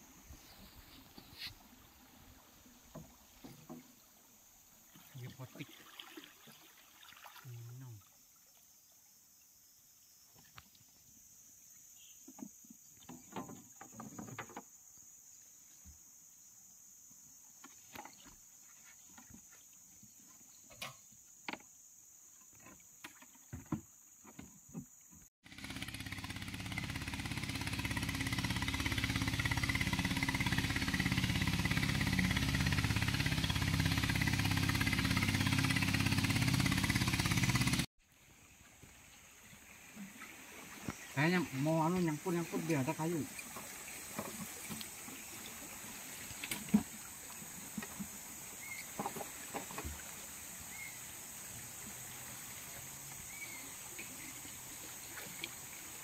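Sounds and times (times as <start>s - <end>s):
boat engine running: 25.4s - 37.9s.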